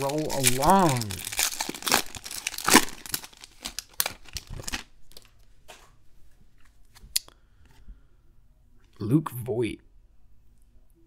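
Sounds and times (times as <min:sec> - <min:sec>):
foil wrapper crinkling and tearing: 0:00.0 - 0:05.3.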